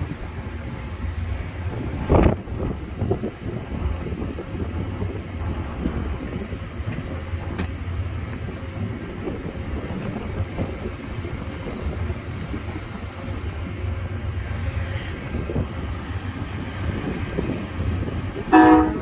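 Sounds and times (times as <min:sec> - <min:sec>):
train wheels rumbling on rail: 0:00.0 - 0:19.0.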